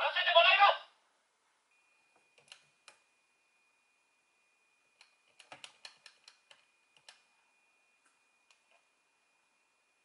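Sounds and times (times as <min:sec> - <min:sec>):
faint steady high tone: 0:01.7 - 0:02.4, 0:06.7 - 0:10.0.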